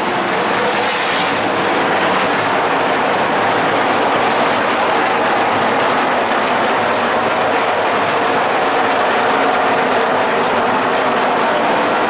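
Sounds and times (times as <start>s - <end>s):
racing truck engines droning: 0.0s - 12.0s.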